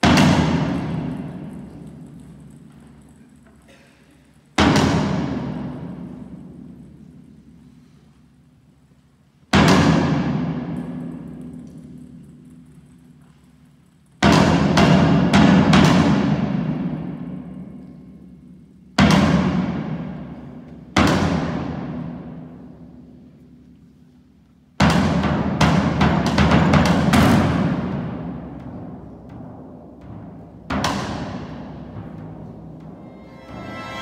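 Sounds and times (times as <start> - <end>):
loud percussion hits: 0.0 - 2.0, 4.6 - 6.9, 9.5 - 11.6, 14.2 - 17.8, 19.0 - 22.7, 24.8 - 34.0
orchestra playing: 33.0 - 34.0.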